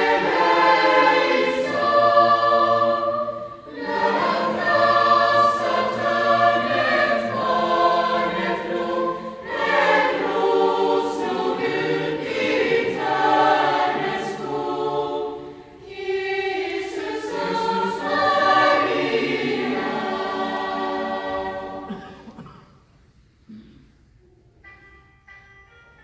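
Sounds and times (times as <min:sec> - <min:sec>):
choir singing sustained notes: 0:00.0 - 0:22.5.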